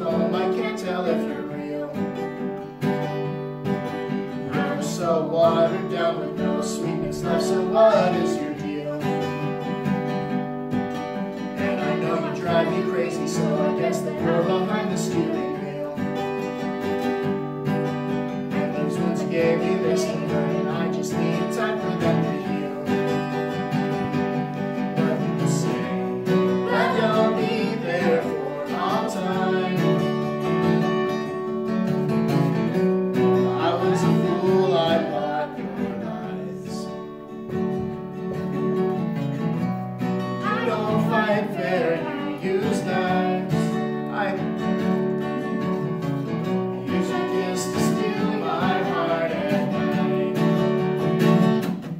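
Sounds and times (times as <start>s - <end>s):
person singing: 0.0s - 2.4s, 4.4s - 9.6s, 11.6s - 16.5s, 18.5s - 24.2s, 24.8s - 30.8s, 33.2s - 37.0s, 40.3s - 44.6s, 45.2s - 51.0s
acoustic guitar strumming: 0.0s - 51.9s.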